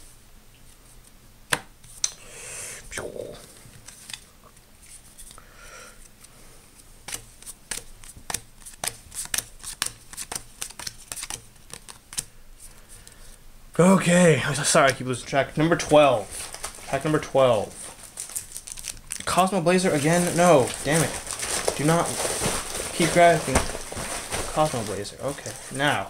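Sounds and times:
cards snapping and clicking: 0:07.0 - 0:12.3.

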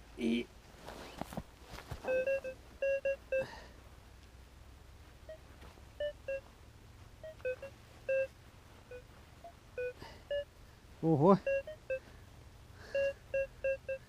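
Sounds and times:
metal detector beeping: 0:02.0 - 0:03.6, 0:05.3 - 0:06.5, 0:07.2 - 0:10.5, 0:11.4 - 0:12.1, 0:12.8 - 0:14.0.

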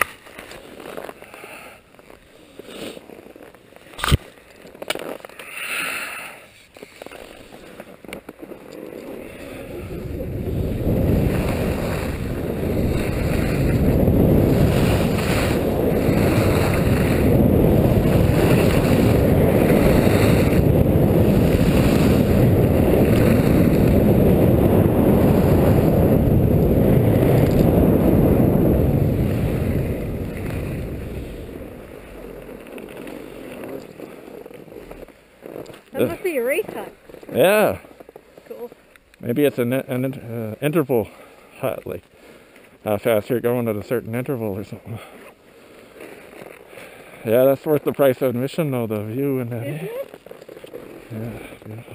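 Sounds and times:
skis running over snow: 0:00.0 - 0:51.9
wind buffeting microphone: 0:09.4 - 0:33.4.

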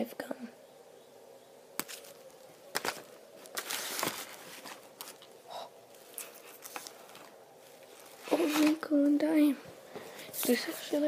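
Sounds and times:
cellophane rustle: 0:01.8 - 0:09.0.

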